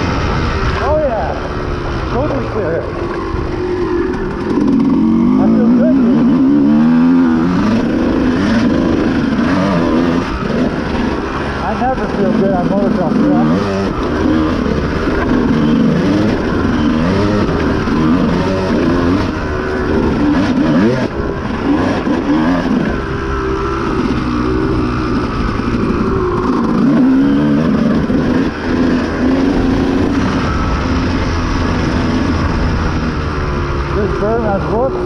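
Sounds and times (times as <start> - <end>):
dirt bike engine revving: 0.0 - 35.0.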